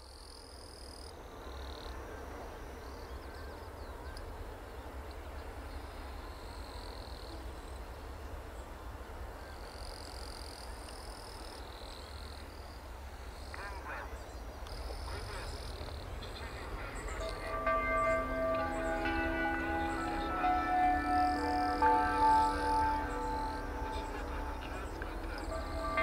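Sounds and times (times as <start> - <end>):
steady low rumble: 15.1 - 26.0.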